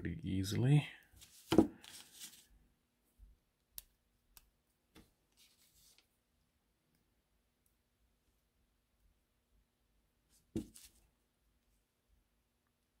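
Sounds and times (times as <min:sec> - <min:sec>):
soft rustles of handling: 0:01.0 - 0:03.2, 0:04.7 - 0:06.2, 0:10.3 - 0:11.2.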